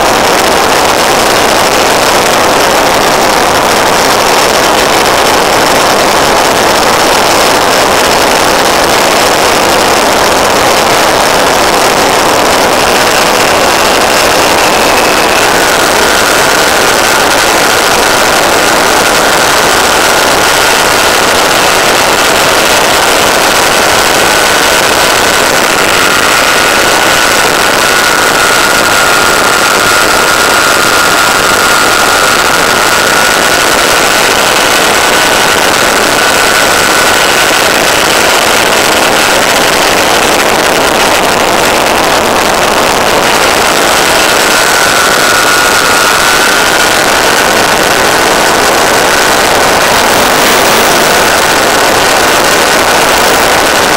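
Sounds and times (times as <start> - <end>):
electric motor and propeller whine: 0.0 - 53.9
airflow rushing: 10.2 - 37.6, 40.7 - 53.8.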